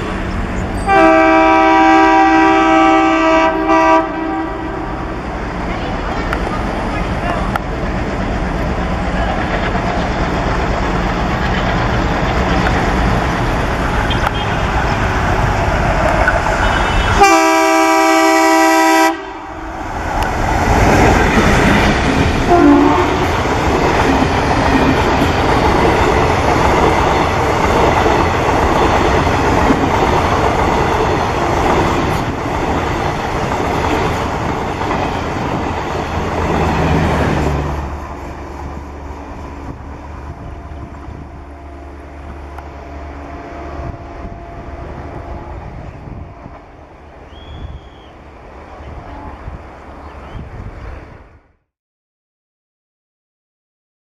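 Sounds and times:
diesel locomotive engine running: 0.0s - 50.1s
train wheels on rails: 0.0s - 51.2s
locomotive horn chord: 0.8s - 5.1s, 16.6s - 19.8s, 22.5s - 23.3s.

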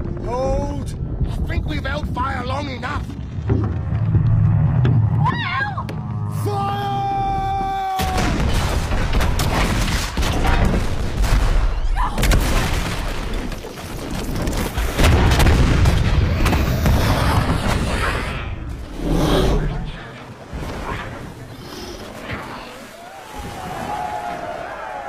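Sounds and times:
cannons firing: 8.0s - 18.5s.

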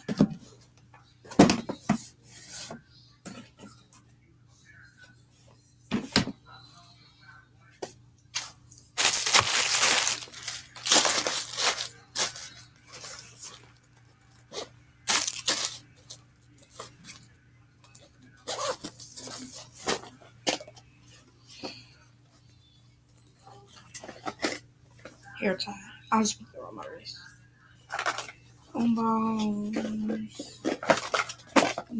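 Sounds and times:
bags rustling and crinkling: 9.0s - 13.8s, 15.1s - 15.8s.

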